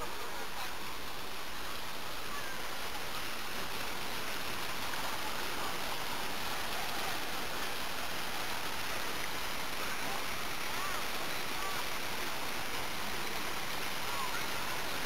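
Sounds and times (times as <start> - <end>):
fountain water splashing: 0.0 - 15.0.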